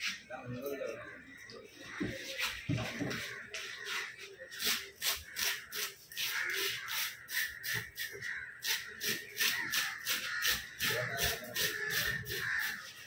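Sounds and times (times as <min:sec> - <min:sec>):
knife scraping fish scales: 0:04.5 - 0:13.0.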